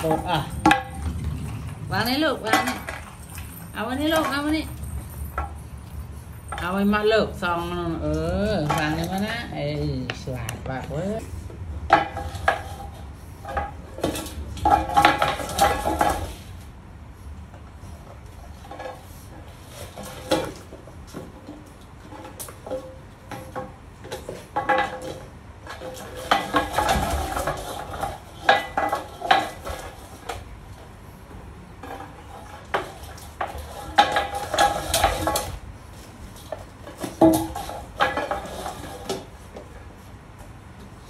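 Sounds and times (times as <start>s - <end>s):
metal bowl clattering on wooden floor: 0.0s - 5.6s, 11.9s - 16.4s, 22.1s - 30.1s, 31.8s - 35.6s, 36.4s - 39.3s.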